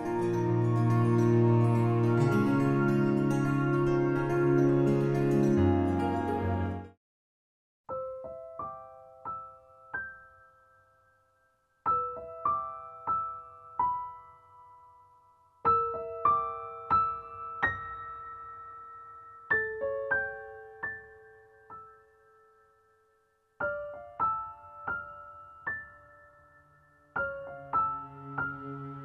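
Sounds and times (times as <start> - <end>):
soft solo piano: 7.9 - 11.2, 11.8 - 23.0, 23.6 - 29.0.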